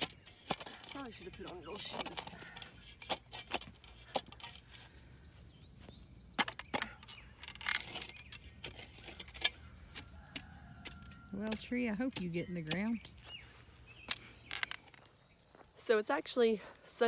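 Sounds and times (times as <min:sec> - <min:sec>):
shovel blade scraping dirt: 0:00.0 - 0:04.8, 0:06.4 - 0:14.5
shovel chopping into dry soil: 0:06.4 - 0:14.8.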